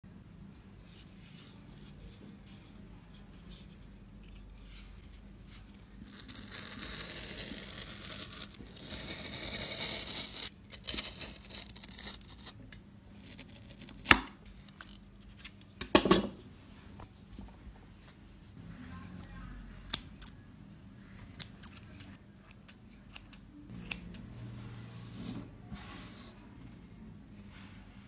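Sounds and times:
knife scraping through yarn: 6.0 - 12.6.

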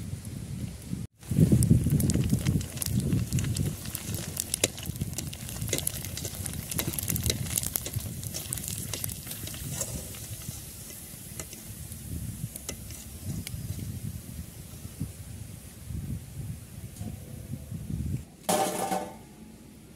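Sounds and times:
deep-frying sizzle with crackling pops: 0.1 - 15.2
skimmer stirring in oil: 1.8 - 14.0.

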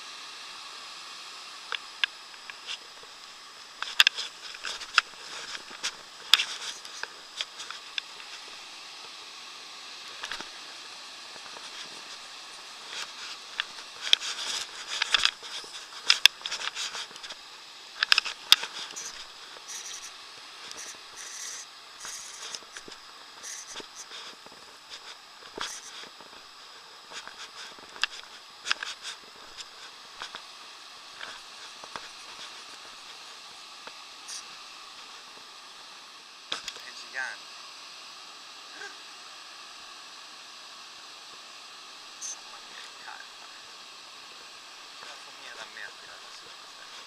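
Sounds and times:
sharp clicks and rustles: 1.7 - 9.2, 10.2 - 10.6, 11.4 - 30.5, 31.1 - 35.5, 36.5 - 36.9.

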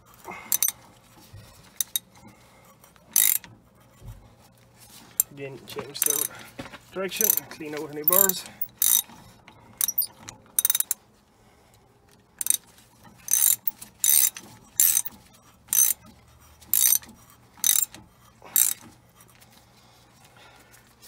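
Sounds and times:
ratchet clicking: 0.5 - 0.7, 1.6 - 2.1, 3.1 - 3.6, 6.0 - 6.3, 7.2 - 9.2, 9.8 - 11.0, 12.1 - 18.9.

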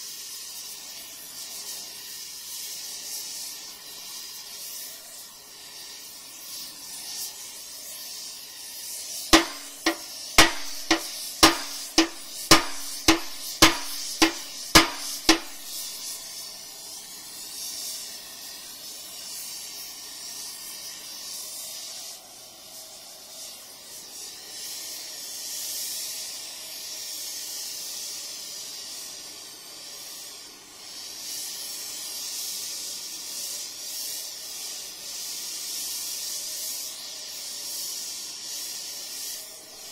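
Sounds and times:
arc gouging torch hissing: 0.0 - 39.9
hammer blows on steel: 9.4 - 16.0.

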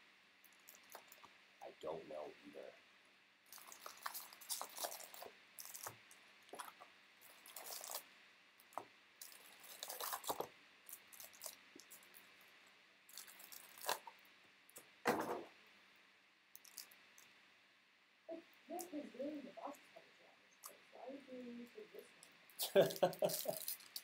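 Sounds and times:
wrapper crinkling and rustling: 3.5 - 6.0, 6.6 - 8.0, 9.2 - 12.2, 13.1 - 14.1, 16.6 - 16.9, 22.7 - 24.0.

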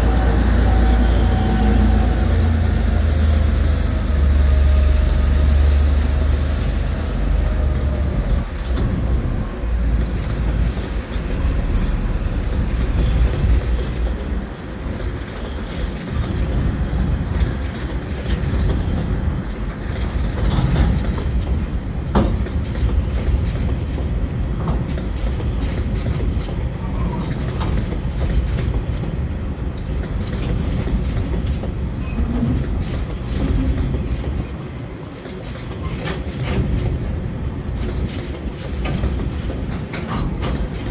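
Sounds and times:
train wheels clacking over rail joints: 0.0 - 40.9.

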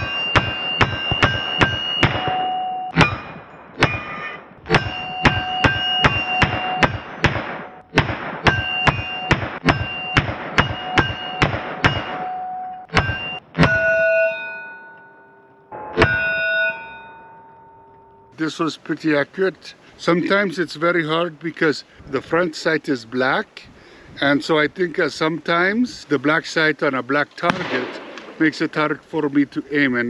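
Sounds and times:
bullets clanging on steel plates: 0.0 - 18.3
rifle firing rapid shots: 4.7 - 12.2, 27.5 - 28.5.

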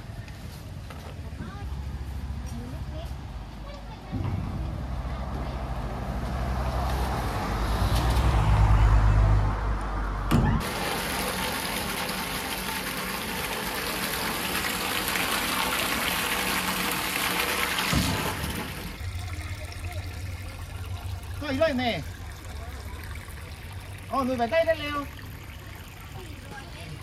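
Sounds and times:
low engine rumble: 0.0 - 27.0
liquid gushing from a hose: 10.6 - 27.0.

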